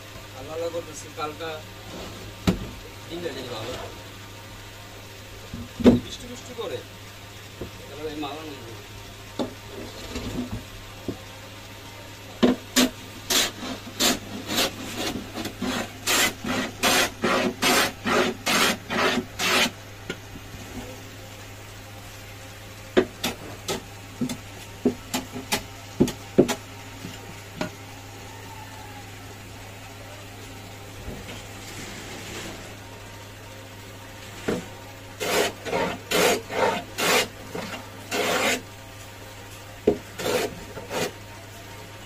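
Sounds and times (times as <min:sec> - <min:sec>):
hand tool scraping wood: 0:12.4 - 0:19.8, 0:35.2 - 0:38.6, 0:39.9 - 0:41.2.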